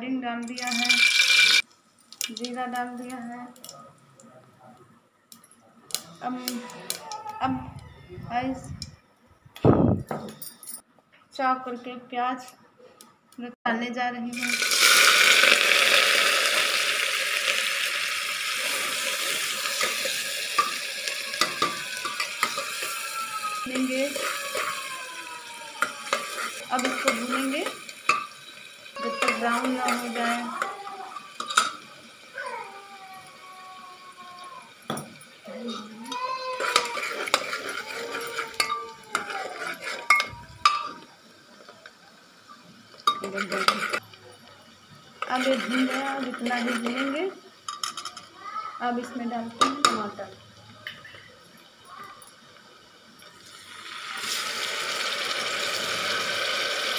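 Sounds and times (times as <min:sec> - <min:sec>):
onions sizzling in hot oil: 0:00.5 - 0:03.3, 0:14.3 - 0:47.8, 0:51.4 - 0:56.9
spoon clinking against pot: 0:25.8 - 0:28.4.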